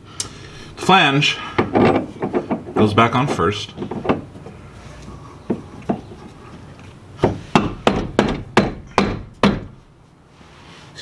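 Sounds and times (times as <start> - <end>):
sharp knocks on metal flange: 7.2 - 9.8.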